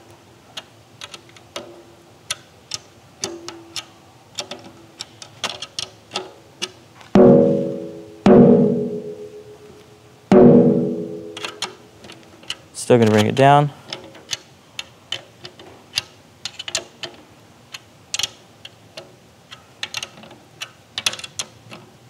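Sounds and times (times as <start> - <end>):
loud ringing snare strikes: 7.2 - 9.6, 10.3 - 11.6.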